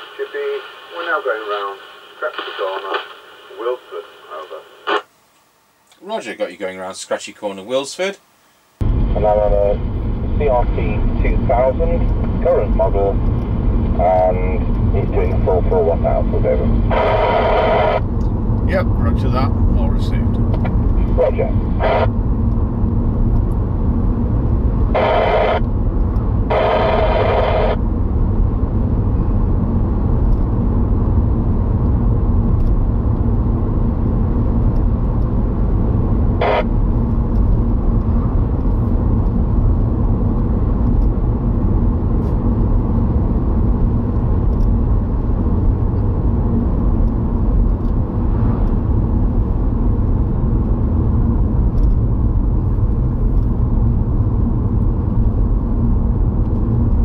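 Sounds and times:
road and engine rumble in car: 0:08.8 - 0:57.0.

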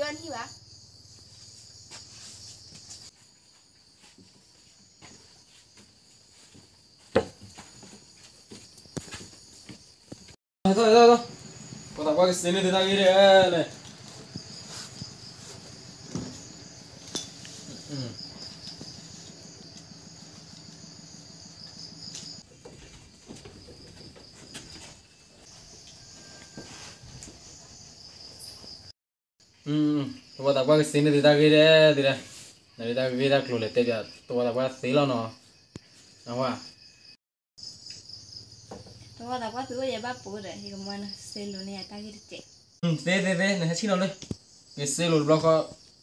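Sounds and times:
high insect chorus: 0:00.0 - 0:46.0
footsteps on wooden boards: 0:03.9 - 0:10.4, 0:22.5 - 0:25.7.

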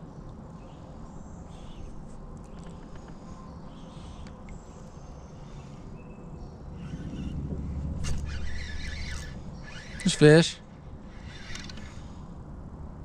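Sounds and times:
insects buzzing: 0:06.6 - 0:12.4
steady low rumble: 0:06.6 - 0:13.0.

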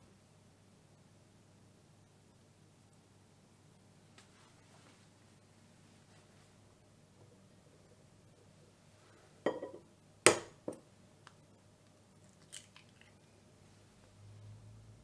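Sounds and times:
egg shell cracking: 0:12.3 - 0:13.2.

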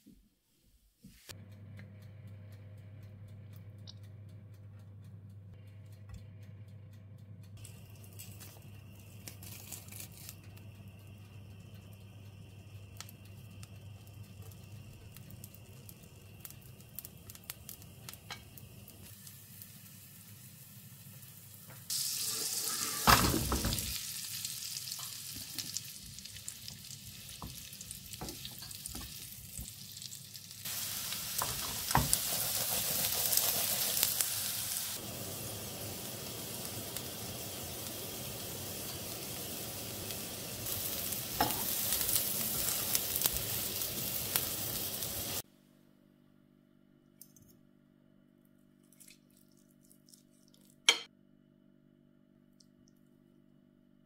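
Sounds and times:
food sizzling in hot oil: 0:08.1 - 0:10.4, 0:14.0 - 0:45.4.

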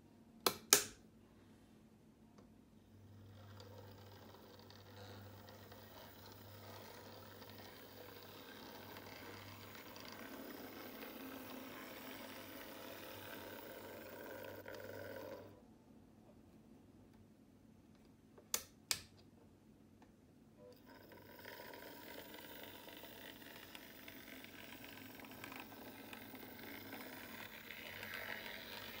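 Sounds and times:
model locomotive motor whir: 0:03.2 - 0:15.6, 0:20.7 - 0:29.0
model train running on track: 0:05.3 - 0:14.8.

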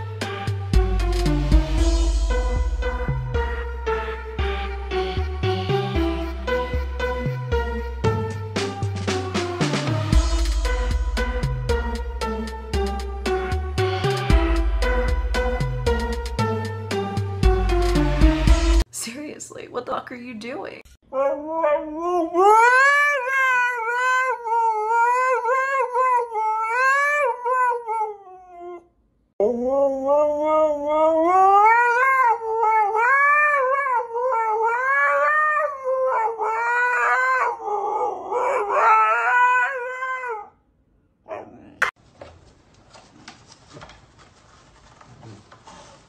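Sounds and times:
husky howling: 0:29.4 - 0:40.6.

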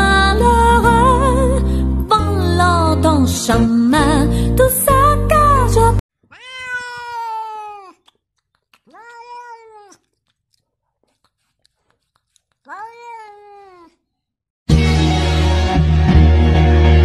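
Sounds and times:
cat meowing: 0:06.2 - 0:08.1, 0:08.8 - 0:10.2, 0:12.6 - 0:14.0.

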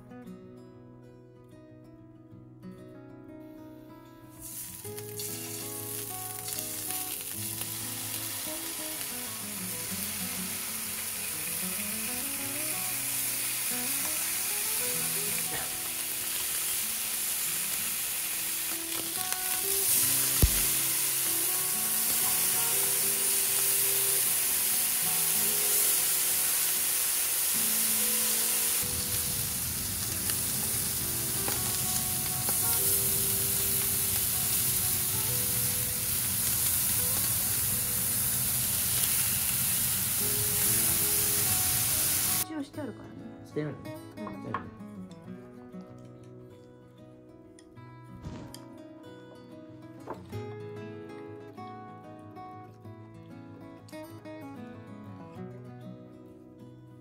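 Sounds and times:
soft background music: 0:03.6 - 0:46.5
meat sizzling in oil: 0:04.4 - 0:42.4
sharp tap: 0:20.4 - 0:20.7.

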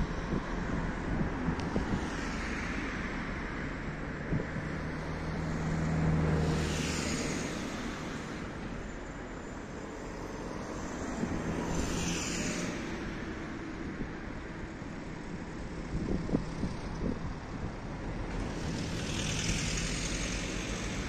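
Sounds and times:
road traffic drone: 0:00.0 - 0:21.0
vehicle passing close: 0:18.1 - 0:21.0.

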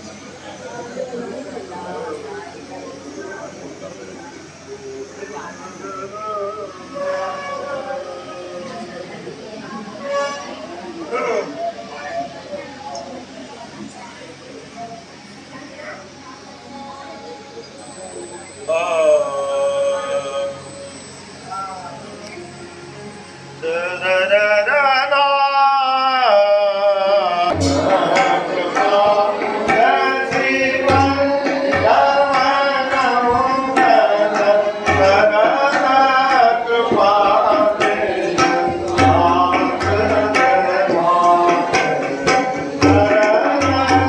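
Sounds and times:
person singing devotional song: 0:23.6 - 0:44.0
drum strokes and deep thumps: 0:27.5 - 0:44.0.

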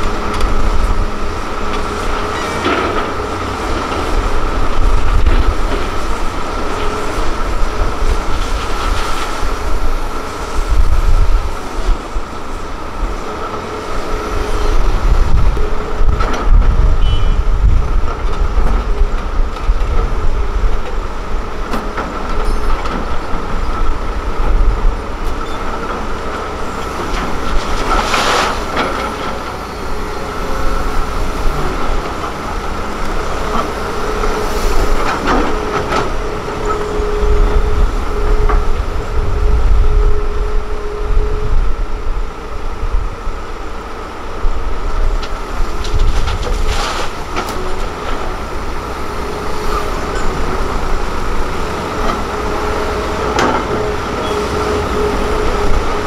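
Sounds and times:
excavator diesel rumble: 0:00.0 - 0:56.0.

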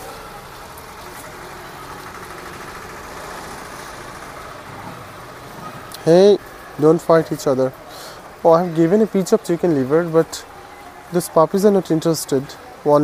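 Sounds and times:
steady engine hum: 0:00.0 - 0:08.5.

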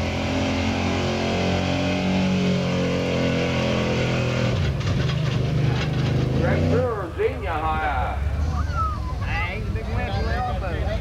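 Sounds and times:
truck engine running at high revs: 0:00.0 - 0:07.3.

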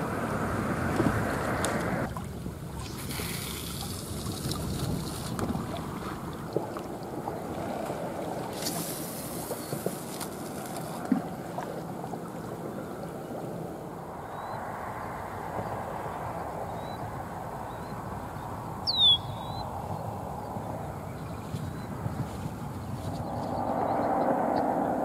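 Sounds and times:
small waves lapping: 0:00.0 - 0:18.8
wind on microphone: 0:00.0 - 0:25.0.

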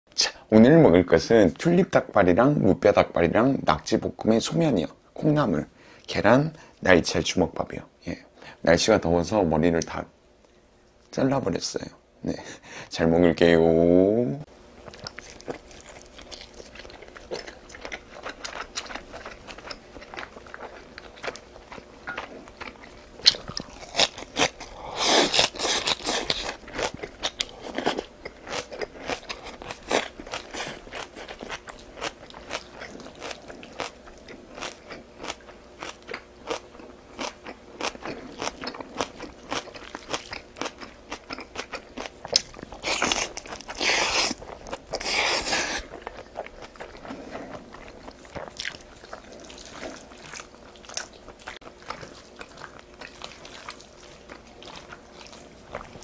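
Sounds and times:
crunching and chewing: 0:14.8 - 0:56.0.

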